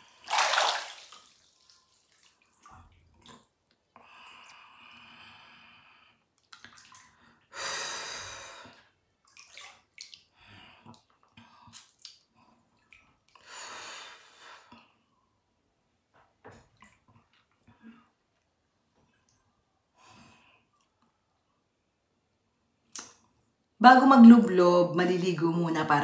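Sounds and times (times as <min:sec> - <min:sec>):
bath water sloshing and splashing: 0:00.0 - 0:03.8, 0:06.4 - 0:07.5, 0:09.2 - 0:13.3
water dripping: 0:00.0 - 0:03.8, 0:06.4 - 0:07.3, 0:09.2 - 0:13.4.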